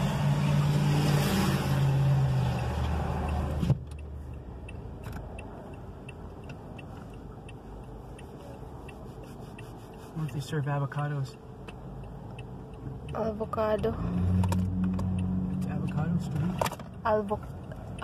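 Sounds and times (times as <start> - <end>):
traffic noise: 0.0 - 18.0
faint ticking: 2.6 - 16.4, 17.0 - 18.0.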